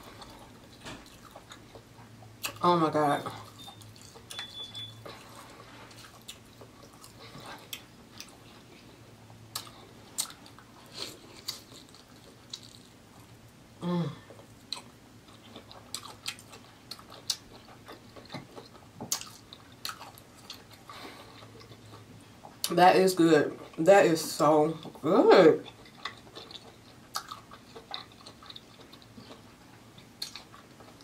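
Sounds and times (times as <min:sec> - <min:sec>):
close chewing with wet smacks: 0:00.1 - 0:02.6, 0:03.4 - 0:12.9, 0:14.7 - 0:22.7, 0:25.6 - 0:31.0
person humming: 0:13.8 - 0:14.3.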